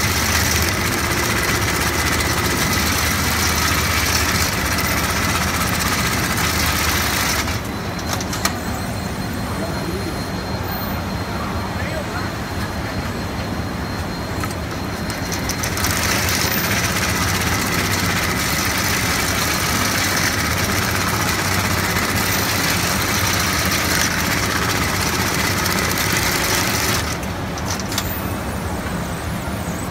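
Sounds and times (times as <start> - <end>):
sewing machine needle rattle: 15.0 - 28.1.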